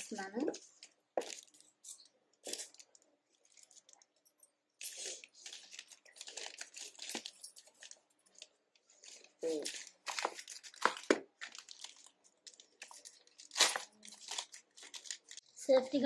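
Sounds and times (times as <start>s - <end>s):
plastic bag tearing and crinkling: 4.8s - 8.0s, 9.0s - 15.5s.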